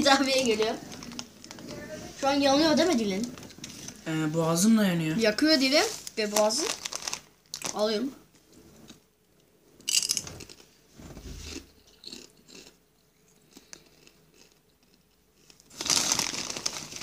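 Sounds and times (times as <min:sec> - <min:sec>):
tortilla chips crunching: 0:06.2 - 0:07.8, 0:13.5 - 0:17.0.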